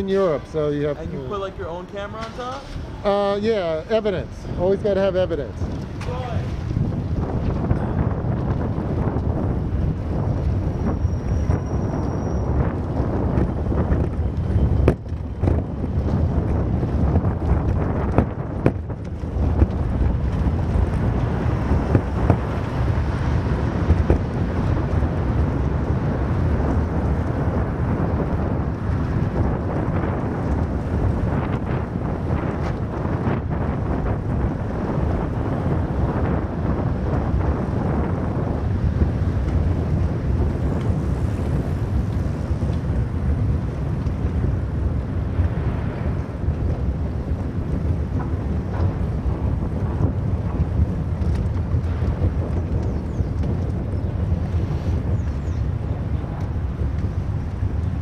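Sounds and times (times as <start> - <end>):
low rumble of vehicle rolling: 0.0 - 58.0
wind buffeting microphone: 0.0 - 58.0.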